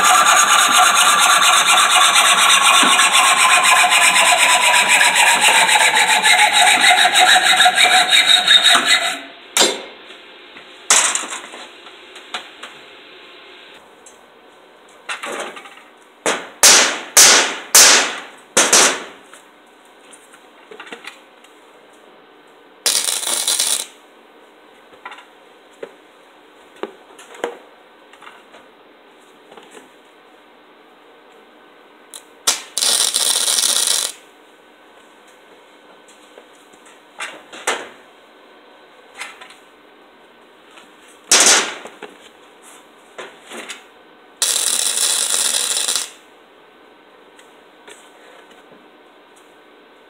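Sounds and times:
rasping noise: 0.0 - 9.3
saw cutting steel pipe: 0.0 - 9.3, 22.9 - 23.8, 44.4 - 46.1.

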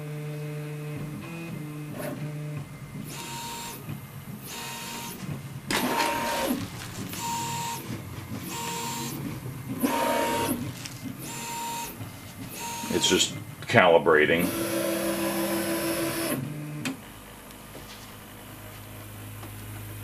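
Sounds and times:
stepper motors whirring: 1.2 - 13.6, 14.2 - 16.9.

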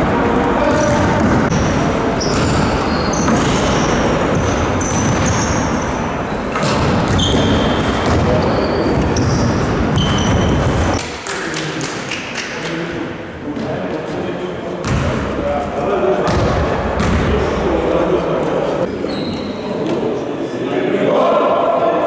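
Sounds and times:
sneaker squeaks: 0.6 - 11.0, 18.9 - 20.0
basketball bouncing on court: 0.7 - 5.8, 6.5 - 11.0, 14.8 - 15.2, 16.3 - 17.3.

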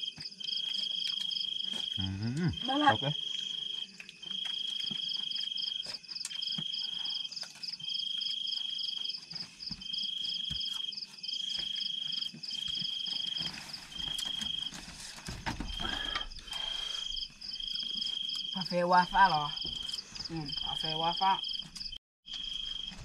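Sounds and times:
insect repeating trills: 0.0 - 9.2, 15.8 - 22.9
pulsing insect trill chorus: 1.0 - 9.2.

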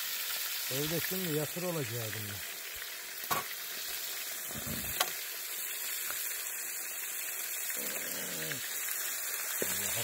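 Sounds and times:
fish sizzling in oil: 0.0 - 10.0.

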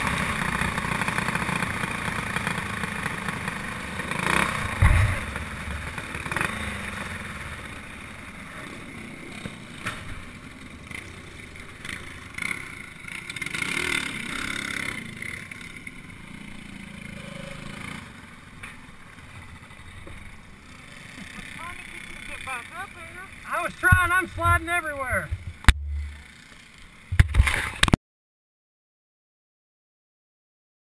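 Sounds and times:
kart knocking over dirt: 0.0 - 6.8, 27.1 - 28.0
kart engine running: 0.0 - 27.9
heavy thump: 4.8 - 5.5.

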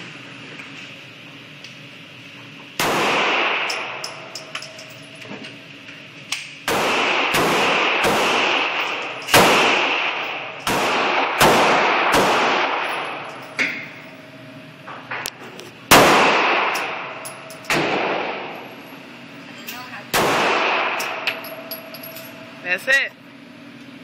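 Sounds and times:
pistol shots with echo: 2.8 - 4.0, 6.7 - 13.2, 15.9 - 18.6, 20.1 - 21.3.

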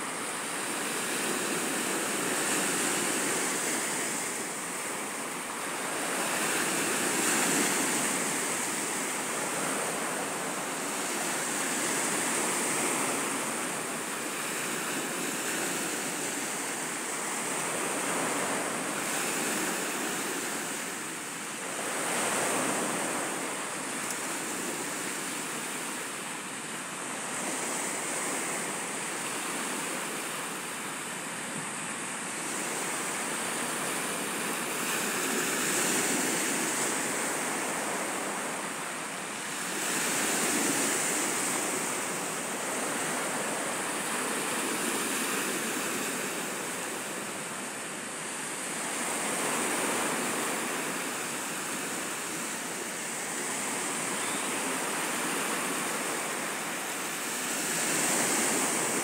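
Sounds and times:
waves breaking on pebble beach: 0.0 - 59.0.

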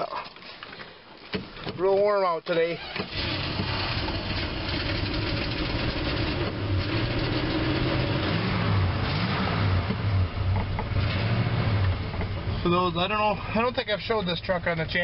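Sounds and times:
engine running: 3.0 - 14.9.

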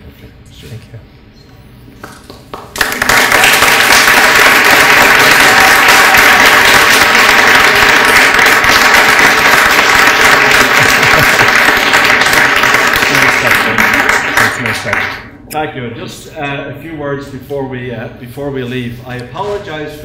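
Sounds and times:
audience applauding: 2.0 - 15.3.

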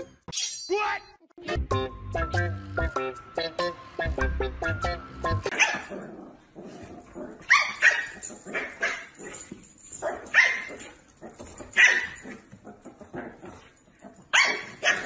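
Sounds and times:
dog barking: 5.5 - 6.1, 7.5 - 9.4, 10.0 - 12.8, 14.3 - 15.0.

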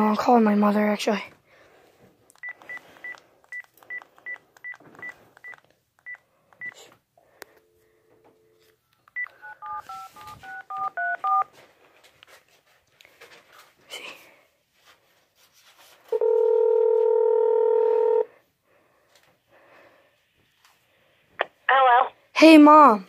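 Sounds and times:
phone key beeps: 2.4 - 6.8, 8.9 - 11.4
touch-tone dialing beeps: 2.4 - 6.8, 8.9 - 11.5
two-note dial tone: 16.2 - 18.3.

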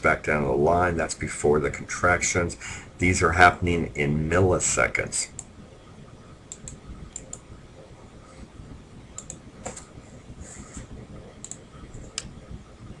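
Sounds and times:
low room hum: 0.0 - 13.0
computer mouse clicking: 6.5 - 7.4, 9.2 - 9.9, 11.4 - 12.4.

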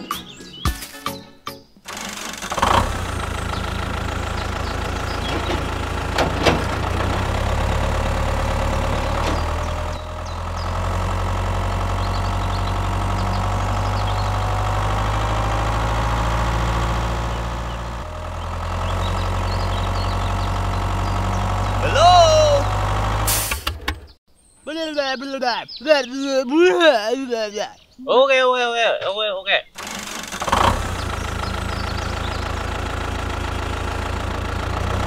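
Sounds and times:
tractor engine idling: 1.8 - 24.2, 29.8 - 35.0.

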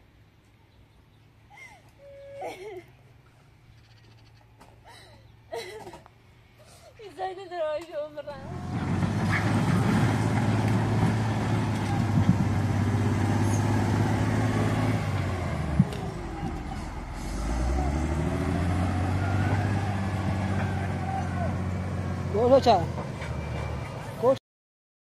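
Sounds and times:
vehicle engine running: 8.4 - 24.4.

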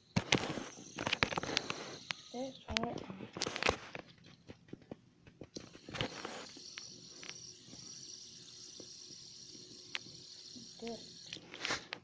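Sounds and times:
fidget spinner whirring: 0.0 - 3.7, 5.6 - 12.0
fidget spinner clicks and rustles: 0.1 - 9.0.

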